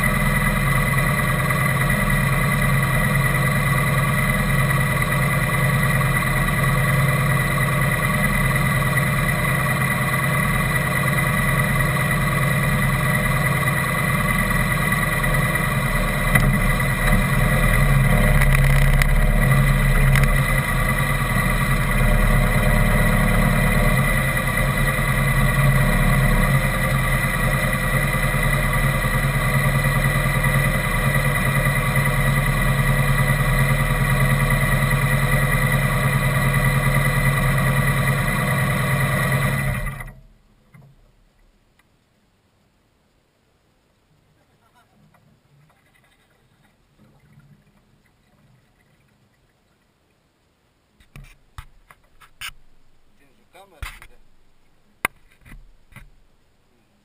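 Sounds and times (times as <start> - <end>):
vehicle engine idling: 0.0 - 42.2.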